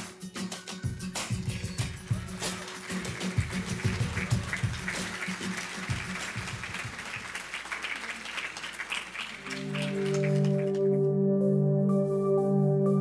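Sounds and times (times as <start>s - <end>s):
pop song: 0.0s - 5.2s
audience applauding: 1.8s - 11.0s
sustained synthesizer pad: 9.6s - 13.0s.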